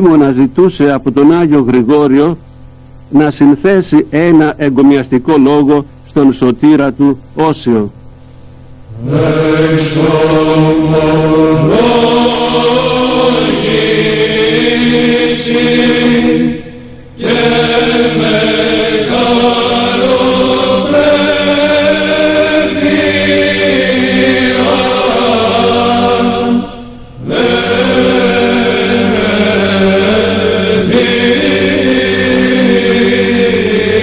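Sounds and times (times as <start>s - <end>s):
voices chanting: 8.9s - 34.0s.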